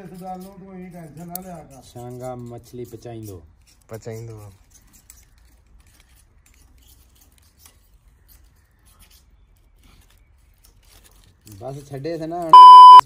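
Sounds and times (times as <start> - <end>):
crackling twig fire: 4.7 - 12.5.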